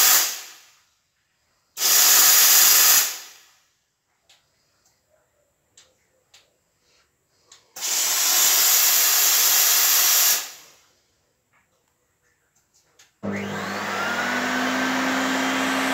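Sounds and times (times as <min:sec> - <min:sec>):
steam hissing from nozzle: 0:00.0 - 0:00.7, 0:01.8 - 0:03.5, 0:07.8 - 0:10.8
vacuum motor whine: 0:13.2 - 0:15.9.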